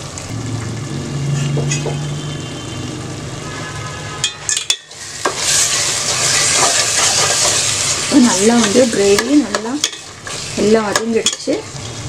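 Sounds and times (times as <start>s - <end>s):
gravy sizzling in a pot: 0.0s - 12.0s
ladle stirring in a pot: 4.5s - 12.0s.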